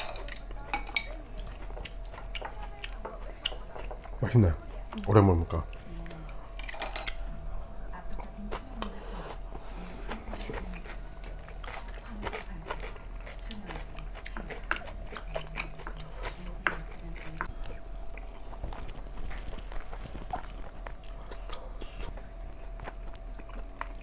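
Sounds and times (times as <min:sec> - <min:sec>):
people chewing food: 0:00.0 - 0:24.0
wooden spoons clicking on plates: 0:06.6 - 0:07.2.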